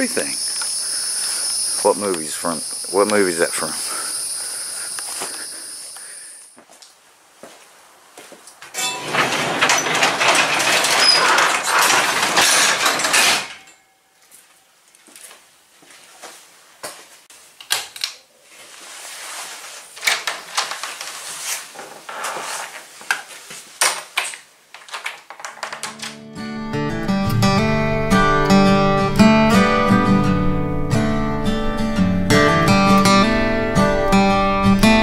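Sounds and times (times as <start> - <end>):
clicks and knocks: 8.7 - 13.8, 23.8 - 26.2
garage door rattling along tracks: 8.8 - 13.8.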